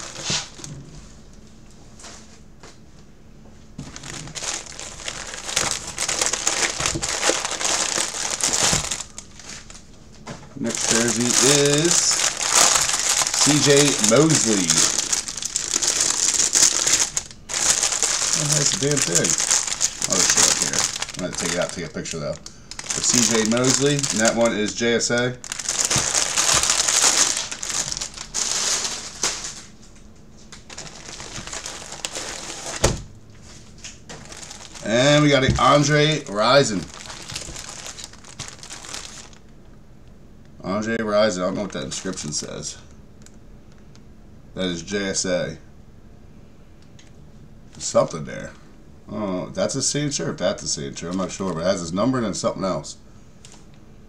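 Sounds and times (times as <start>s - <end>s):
bubble-wrap mailer crinkling: 0.0s - 0.7s, 3.8s - 9.9s, 10.6s - 29.8s, 30.6s - 33.0s, 34.1s - 39.5s.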